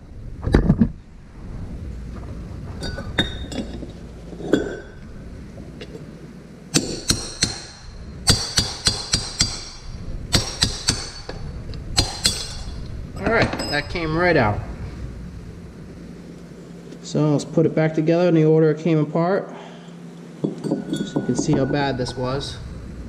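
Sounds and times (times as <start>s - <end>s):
hammer striking steel punch: 6.7s - 11.4s, 12.0s - 12.8s.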